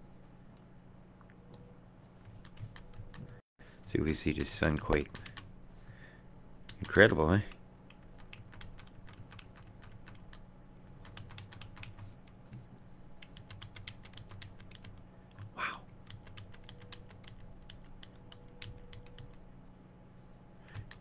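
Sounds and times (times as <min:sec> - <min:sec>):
low steady hum: 0:00.0 - 0:21.0
computer keys clicking: 0:02.3 - 0:03.4, 0:04.9 - 0:05.5, 0:06.7 - 0:12.4, 0:13.2 - 0:19.4, 0:20.7 - 0:21.0.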